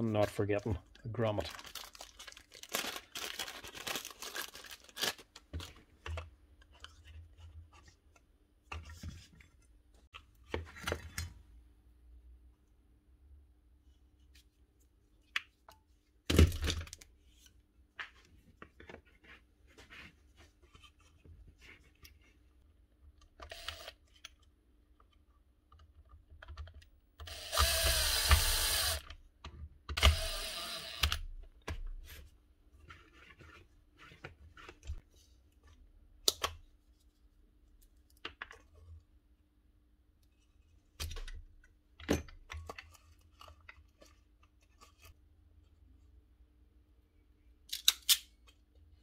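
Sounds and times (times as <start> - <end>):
cordless drill driving a screw: 27.2 - 29.0, 30.0 - 31.2.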